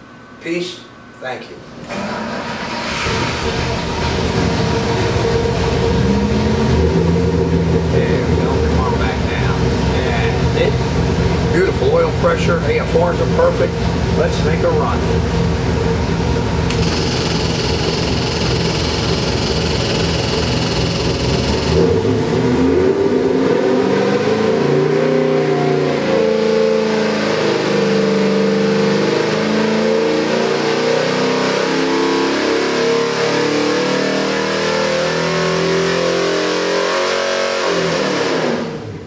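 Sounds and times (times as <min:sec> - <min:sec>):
engine revs climbing at full throttle: 0:02.6 - 0:11.6, 0:16.7 - 0:39.0.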